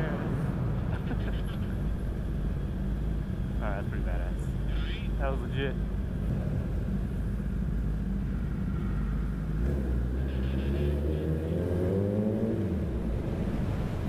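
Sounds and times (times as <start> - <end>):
motorcycle engine revving: 6.1 - 14.0.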